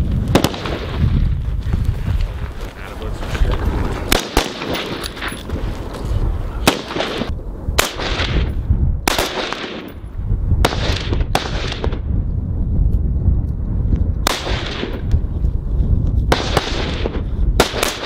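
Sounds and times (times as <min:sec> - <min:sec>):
rifle shots echoing: 0:00.3 - 0:01.1, 0:04.0 - 0:05.4, 0:06.6 - 0:12.1, 0:14.2 - 0:15.0, 0:16.3 - 0:18.0.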